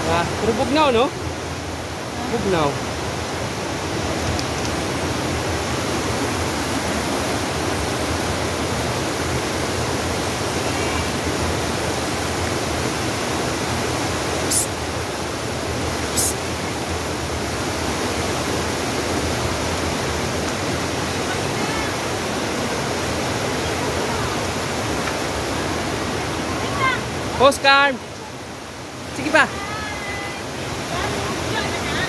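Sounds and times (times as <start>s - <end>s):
mountain stream rushing: 0.0s - 32.0s
short sharp hiss: 14.4s - 14.8s, 16.1s - 16.4s.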